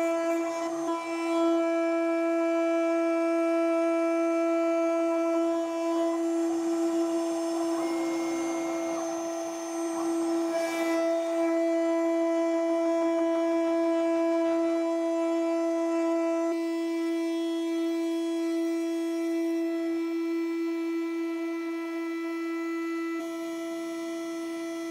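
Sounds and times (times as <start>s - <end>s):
router spindle whining: 0.0s - 24.9s
hiss of cutting plastic: 5.1s - 12.6s.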